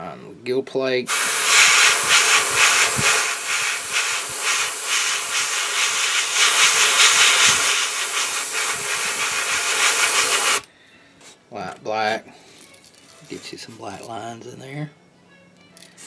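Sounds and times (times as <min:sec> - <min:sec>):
airbrush spraying paint: 0:01.1 - 0:10.7.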